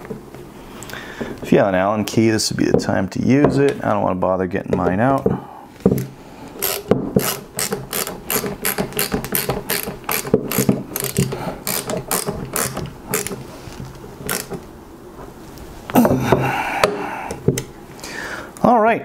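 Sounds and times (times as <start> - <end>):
ratcheting screwdriver clicking: 6.0 - 13.4, 14.2 - 14.6.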